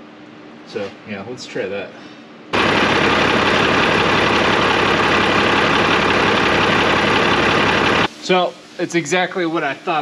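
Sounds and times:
diesel engine idling: 2.6s - 8.1s.

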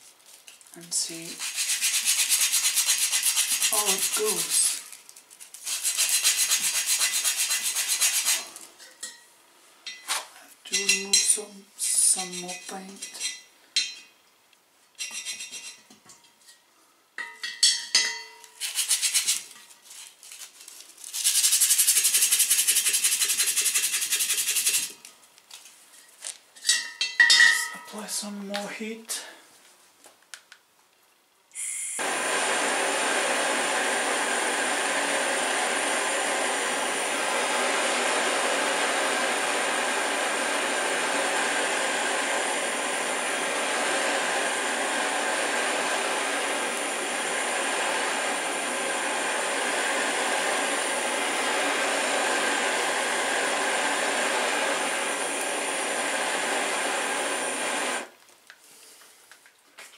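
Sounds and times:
blowtorch flame hissing: 0.9s - 5.0s, 5.6s - 8.7s, 21.2s - 25.0s, 31.6s - 58.1s.

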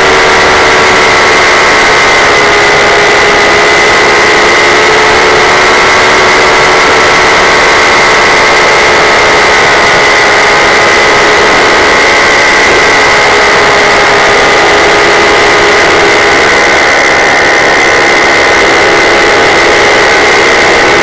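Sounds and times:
high whine: 0.0s - 21.0s
paramotor engine drone: 0.0s - 21.0s.

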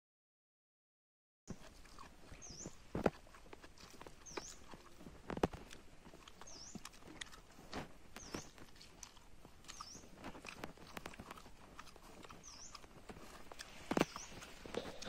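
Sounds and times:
high dipping chirp: 2.3s - 3.1s, 4.1s - 4.9s, 6.3s - 6.9s, 9.6s - 10.2s, 12.2s - 12.9s.

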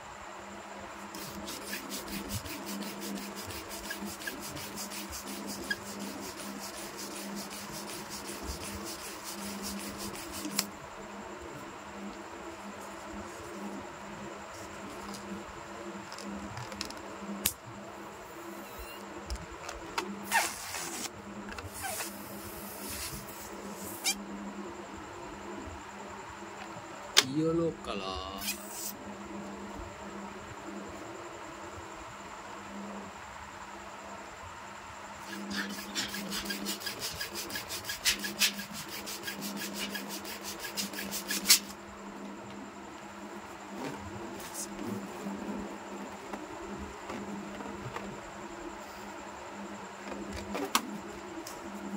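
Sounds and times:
steady low hum: 0.0s - 51.9s
balloon pump rasping strokes: 1.1s - 10.7s, 20.2s - 21.1s, 21.7s - 24.2s, 35.2s - 41.8s
balloon rubber squeaking: 20.2s - 21.1s, 21.7s - 24.2s.

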